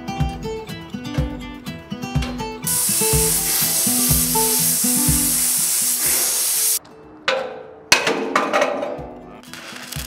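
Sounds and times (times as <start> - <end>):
welding arc crackling and hissing: 2.7 - 6.8.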